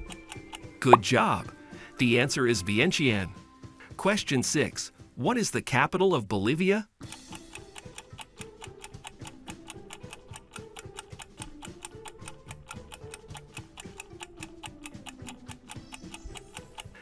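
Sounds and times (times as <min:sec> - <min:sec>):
timer clock ticking rapidly: 0:00.0 - 0:01.0, 0:07.0 - 0:17.0.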